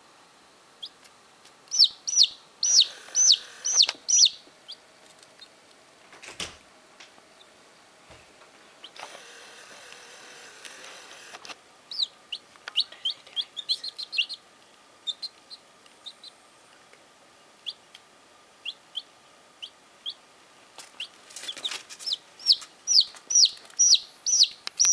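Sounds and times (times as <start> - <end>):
baby chicks peeping: 0.8 - 1.1, 1.7 - 5.5, 8.8 - 16.4, 17.6 - 17.9, 18.6 - 20.2, 20.8 - 24.9.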